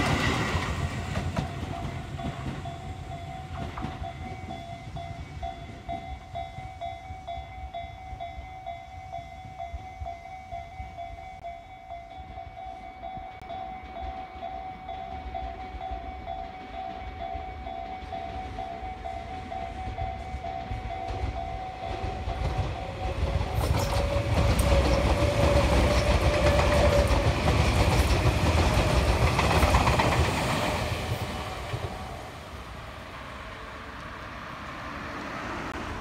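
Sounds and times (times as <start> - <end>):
electric train passing: 0.0 - 36.0
pulsing ringing tone: 1.4 - 28.1.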